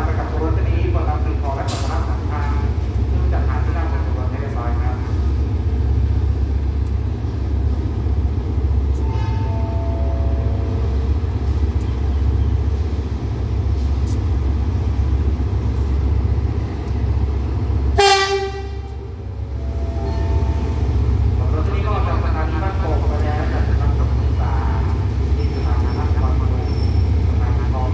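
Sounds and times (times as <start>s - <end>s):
locomotive rumbling: 0.0s - 27.9s
train horn blast: 18.0s - 18.9s.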